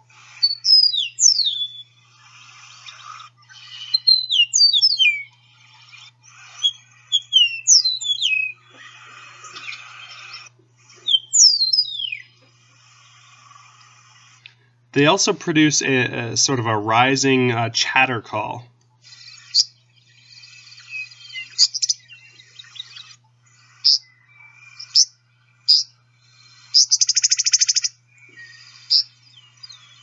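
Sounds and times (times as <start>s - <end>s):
meadowlark singing: 0.4s - 1.8s, 3.5s - 5.3s, 6.6s - 8.6s, 11.0s - 12.3s.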